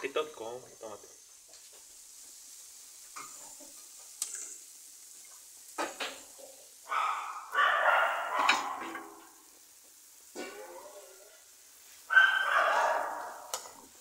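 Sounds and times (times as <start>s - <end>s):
food sizzling in a pan: 0.0s - 14.0s
ceramic bowl and pans clinking: 8.3s - 9.3s.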